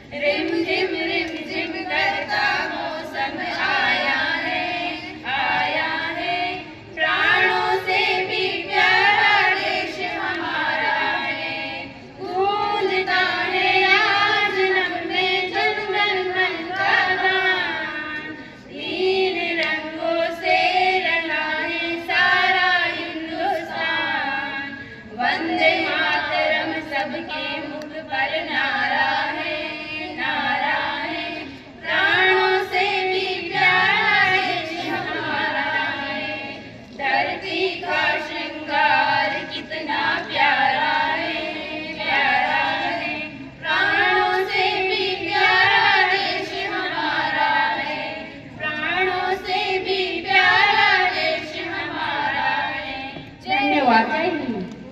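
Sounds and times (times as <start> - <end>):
women singing in unison: 0.0 - 54.9.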